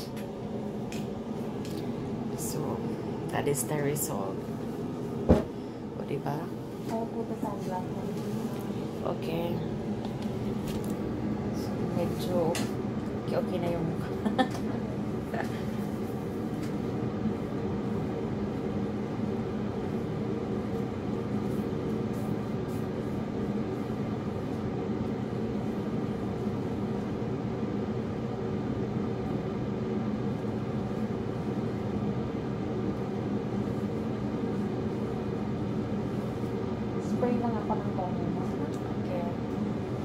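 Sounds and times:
low mechanical hum: 0.0s - 40.0s.

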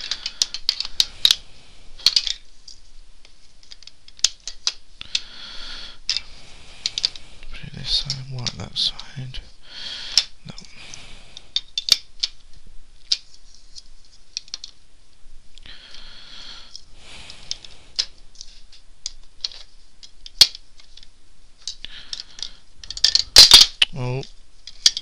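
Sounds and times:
puzzle pieces clicking and knocking: 0.0s - 1.4s, 2.0s - 2.5s, 3.2s - 5.3s, 11.5s - 13.4s, 17.3s - 25.0s.

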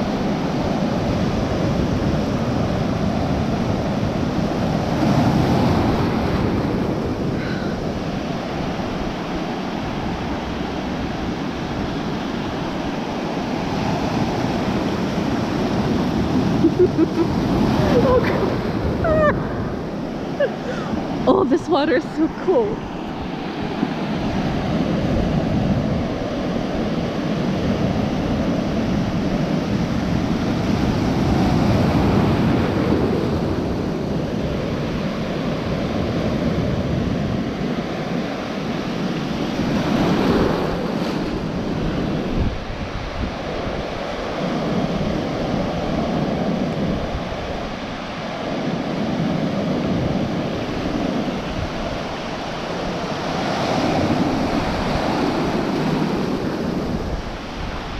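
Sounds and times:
foamy water washing: 0.0s - 36.9s
waves breaking: 0.0s - 57.9s
wind rumbling on microphone: 0.0s - 57.9s.

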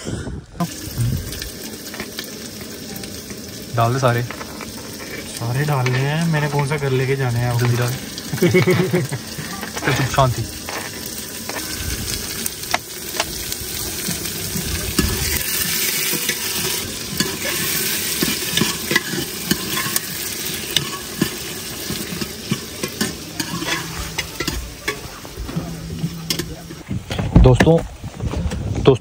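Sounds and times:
onion sizzling in oil: 0.6s - 26.8s
ladle clinking and scraping pot: 7.6s - 26.8s.

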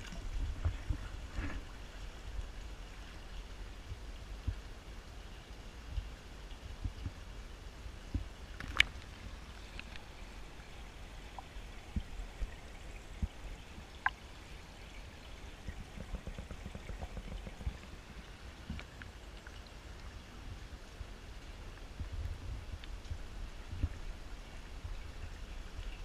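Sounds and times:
pool water sloshing: 0.0s - 3.5s.

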